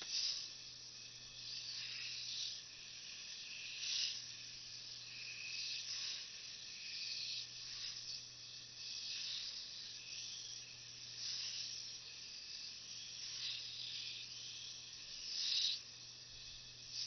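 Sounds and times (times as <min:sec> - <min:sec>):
beads whirring around wire ring: 0:01.5 - 0:04.4, 0:08.8 - 0:10.6, 0:11.2 - 0:15.8, 0:16.4 - 0:17.0.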